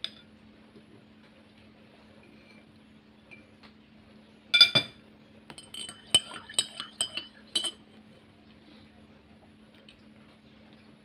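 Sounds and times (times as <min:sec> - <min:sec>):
cutlery clinking on ceramic: 0:04.6 - 0:07.8
spoon clinking in a mug: 0:04.6 - 0:07.9.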